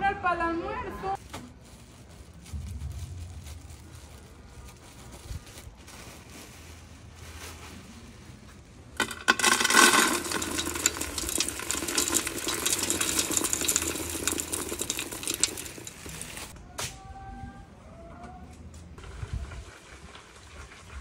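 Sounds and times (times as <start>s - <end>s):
granules pattering into a metal pot: 9.0s - 16.6s
pot ringing: 9.4s - 16.5s.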